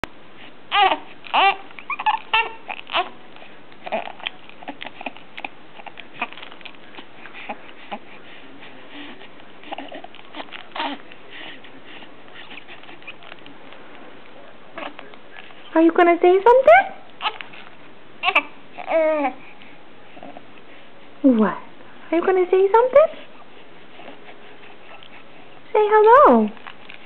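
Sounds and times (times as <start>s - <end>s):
infant cooing: 0.7s - 3.2s, 9.7s - 11.0s, 18.2s - 19.4s.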